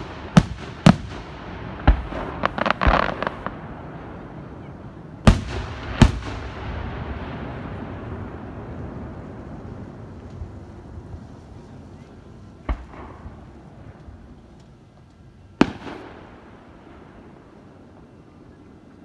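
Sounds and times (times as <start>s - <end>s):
fireworks booming: 0.0s - 14.4s, 15.6s - 18.7s
crackling fireworks pops: 0.0s - 18.2s.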